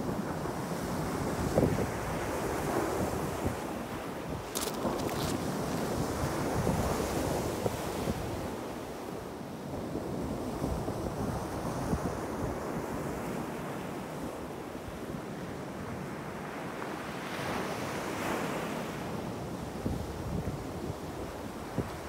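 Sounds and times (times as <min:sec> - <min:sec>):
wind buffeting the microphone: 0:00.1 - 0:08.8, 0:19.8 - 0:22.0.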